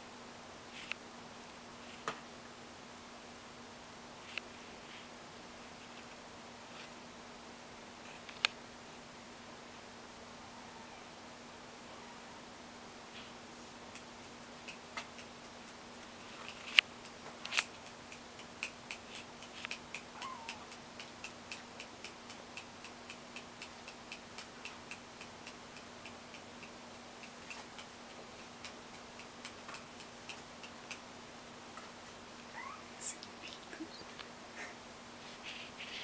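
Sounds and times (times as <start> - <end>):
faint steady hum: 0.0 - 36.0
sharp clicks: 14.0 - 31.0.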